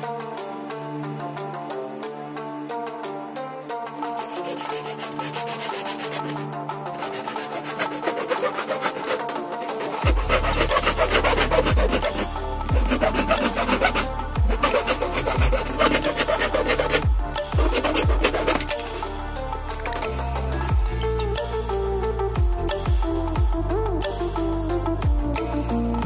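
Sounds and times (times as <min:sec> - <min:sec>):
background music: 0:00.0 - 0:26.0
hacksaw rasping through plastic: 0:04.0 - 0:19.1
heavy bass beat: 0:10.0 - 0:16.2, 0:16.8 - 0:19.2, 0:20.0 - 0:21.6, 0:22.4 - 0:24.2.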